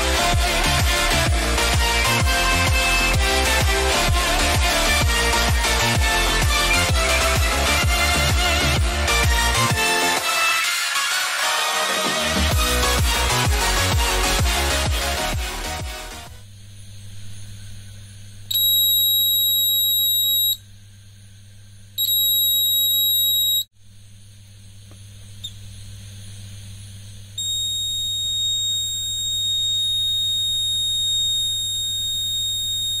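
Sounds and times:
steady low hum: 16.1 - 33.0
high buzzer beep: 18.5 - 20.6, 22.0 - 23.7, 27.4 - 33.0.

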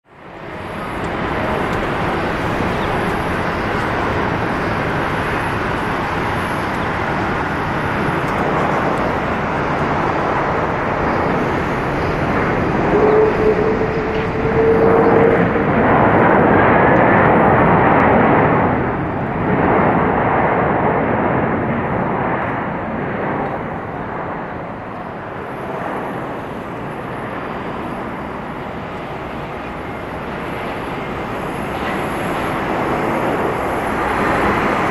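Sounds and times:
jet engine whine: 0.0 - 34.9
jet engines rumbling: 0.0 - 34.9.

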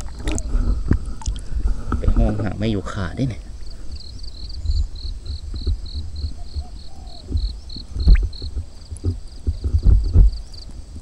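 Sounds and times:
insect chirping: 2.6 - 10.7.

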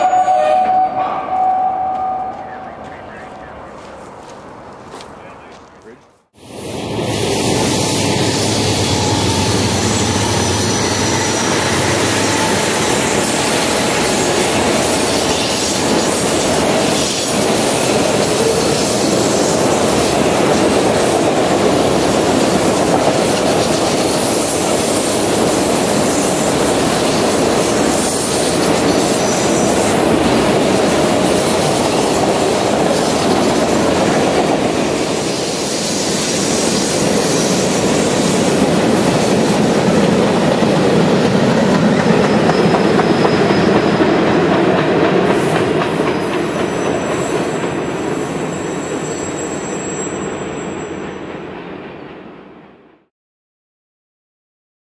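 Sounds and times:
train wheels on rail: 0.0 - 52.9
high wheel squeal: 7.3 - 17.4, 41.8 - 44.1, 46.0 - 51.2.

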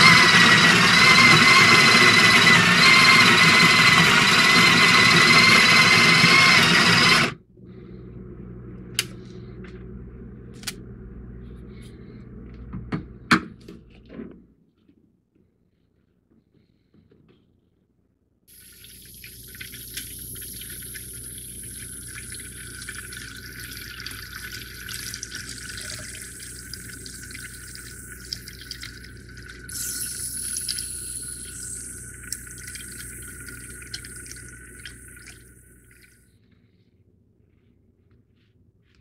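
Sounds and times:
tap water filling plastic pitcher: 18.5 - 36.2.

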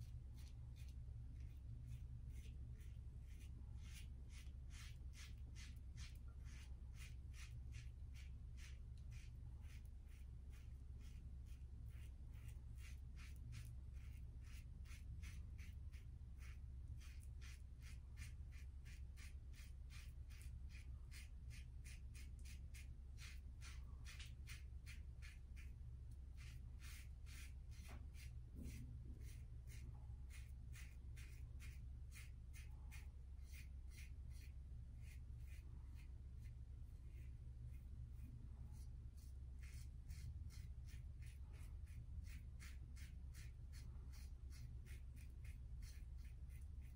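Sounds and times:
steady low hum: 0.0 - 46.9
razor scraping stubble: 26.4 - 46.9.

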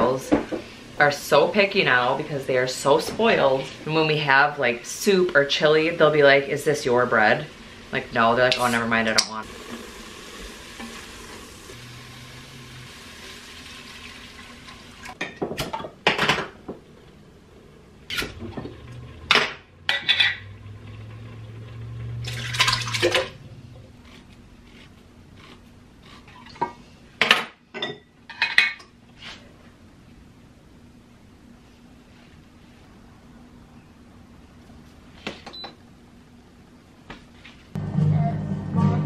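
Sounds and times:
vegetables sizzling in a pot: 0.2 - 15.2.

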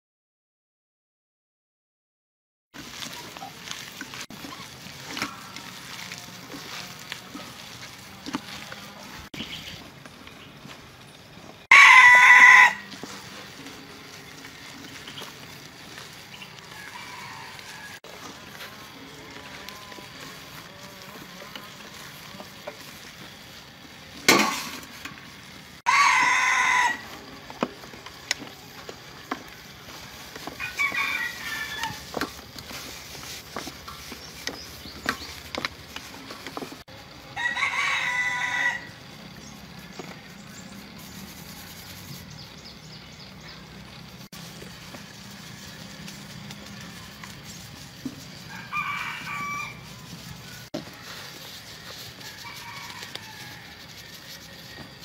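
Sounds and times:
gloved hands mixing food in bowl: 2.8 - 10.6, 26.1 - 36.9, 44.2 - 55.0
rooster crowing: 11.6 - 13.8, 16.5 - 18.6, 25.8 - 27.4, 29.3 - 32.4, 37.0 - 39.2, 48.3 - 54.9.

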